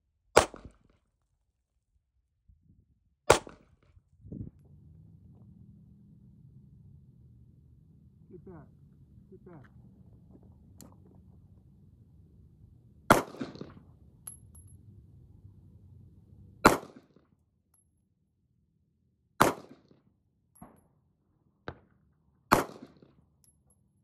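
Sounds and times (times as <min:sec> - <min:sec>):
pistol shots: 0:03.3 - 0:03.6, 0:13.1 - 0:13.8, 0:16.6 - 0:17.1, 0:19.4 - 0:19.8, 0:22.5 - 0:23.0.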